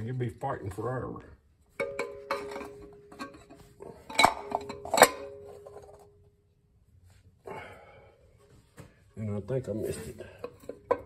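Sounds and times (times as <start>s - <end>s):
metal scraping: 1.7s - 6.0s.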